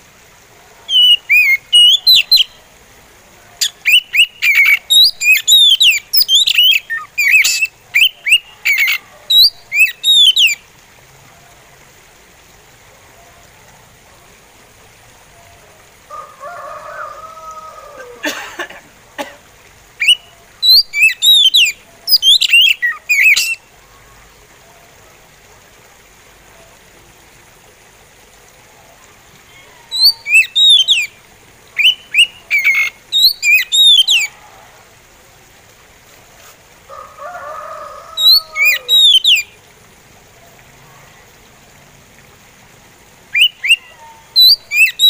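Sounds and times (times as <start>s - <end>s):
bird singing whistled notes: 0.9s - 2.6s, 3.6s - 10.6s, 20.0s - 23.6s, 29.9s - 31.1s, 31.8s - 34.3s, 38.2s - 39.5s, 43.3s - 45.0s.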